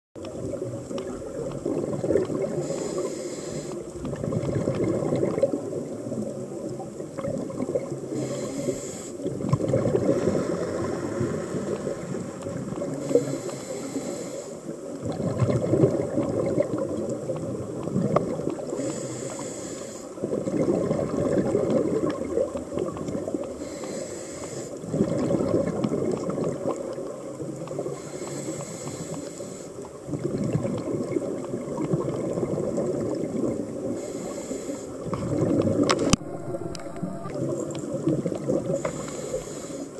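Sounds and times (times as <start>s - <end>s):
exhaled bubbles rushing: 0.3s - 3.0s, 3.9s - 8.1s, 9.2s - 13.2s, 15.0s - 18.8s, 20.2s - 23.5s, 24.8s - 27.9s, 30.0s - 33.9s, 35.0s - 39.6s
hissing regulator inhales: 2.6s - 3.8s, 8.1s - 9.2s, 10.1s - 14.7s, 18.7s - 20.2s, 23.6s - 24.8s, 27.9s - 29.8s, 34.0s - 35.0s, 38.7s - 39.9s.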